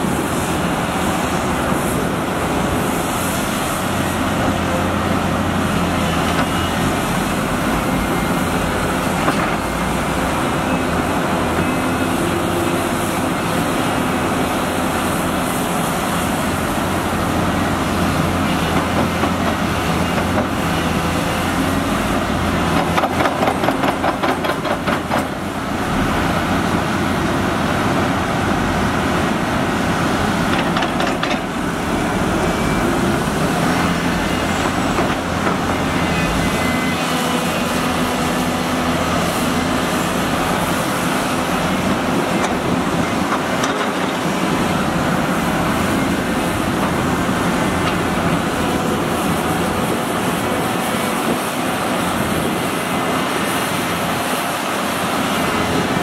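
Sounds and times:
diesel excavator engines running: 0.0 - 56.0.

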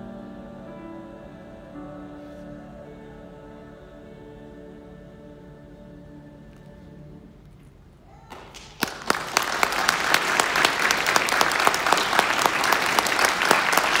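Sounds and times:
audience applauding: 8.3 - 14.0.

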